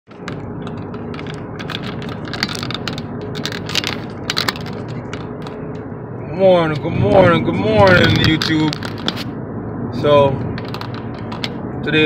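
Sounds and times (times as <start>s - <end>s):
phone handling clicks and rustles: 0.1s - 5.9s, 8.0s - 9.3s, 10.4s - 11.6s
low hum inside car: 0.1s - 12.0s.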